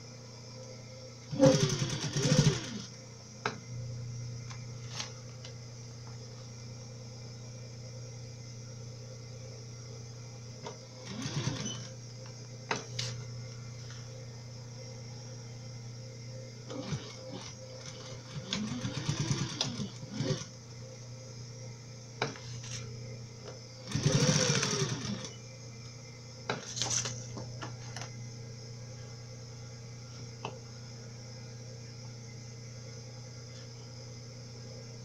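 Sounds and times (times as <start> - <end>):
steady low hum: 0.0 - 35.0
sewing machine stitching: 1.3 - 2.9, 11.0 - 11.9, 16.7 - 20.5, 23.9 - 25.4.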